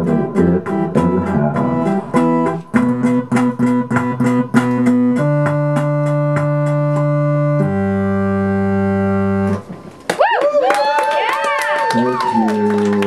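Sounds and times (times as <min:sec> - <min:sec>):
live band playing chords: 0:00.0 - 0:09.9.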